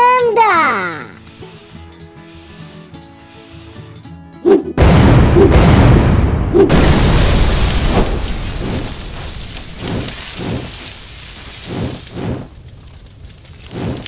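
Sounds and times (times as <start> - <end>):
fiery blast: 4.8 - 14.0.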